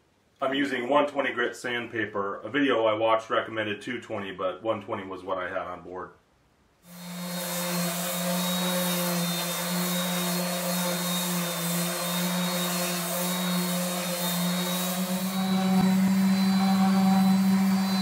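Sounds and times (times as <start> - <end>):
orbital sander running: 6.9 - 18.0.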